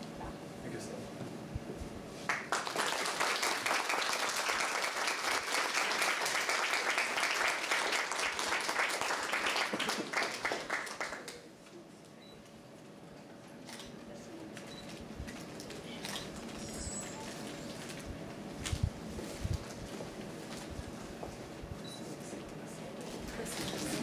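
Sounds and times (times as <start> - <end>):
audience applauding: 2.3 - 11.5.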